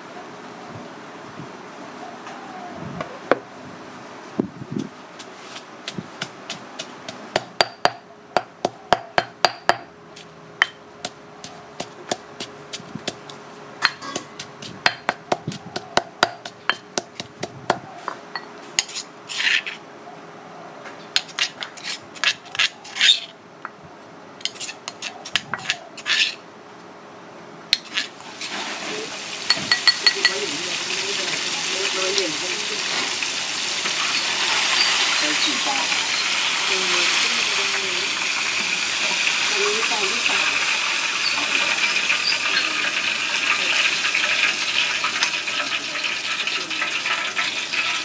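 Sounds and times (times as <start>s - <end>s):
stone pestle pounding in mortar: 5.8s - 9.9s, 10.6s - 17.9s
metal spoon scraping stone: 13.8s - 14.5s, 18.4s - 19.8s, 21.2s - 23.4s, 24.4s - 26.4s, 27.8s - 28.2s.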